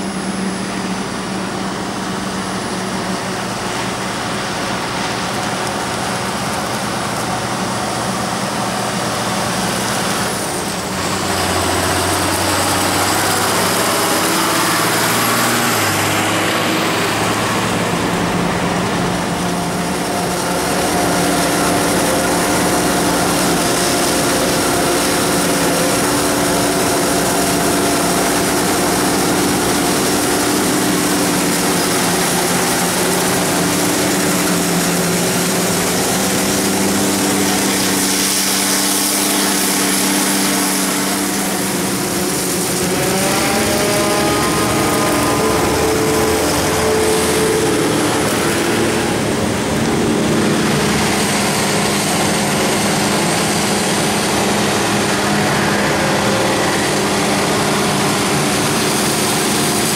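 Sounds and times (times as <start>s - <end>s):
tractors running: 0.0s - 59.9s
forage harvester chopping: 19.6s - 59.9s.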